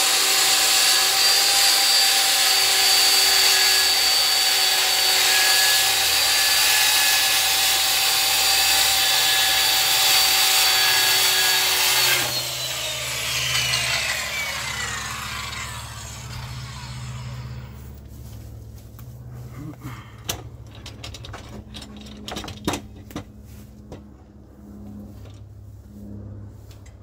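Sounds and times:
saw blade winding down: 0.0 - 18.0
circular saw cutting wood: 0.0 - 18.1.

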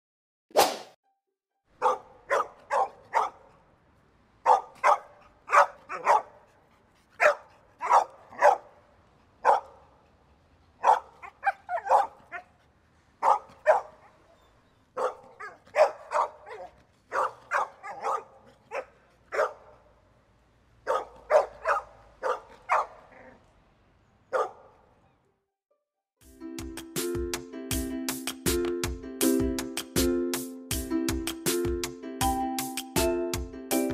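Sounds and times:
dog barking: 1.8 - 3.6, 4.4 - 6.5, 7.2 - 8.8, 9.4 - 9.9, 10.8 - 12.5, 13.2 - 14.3, 15.0 - 20.0, 20.8 - 23.4, 24.3 - 24.9.

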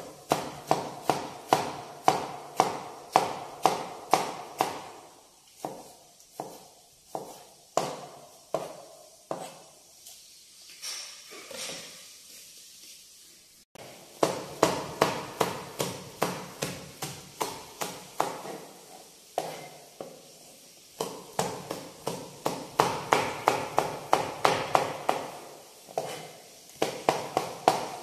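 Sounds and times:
knife chopping on plastic board: 0.3 - 4.9, 5.6 - 9.6, 14.2 - 18.7, 19.4 - 19.7, 21.0 - 25.4, 26.0 - 28.0.

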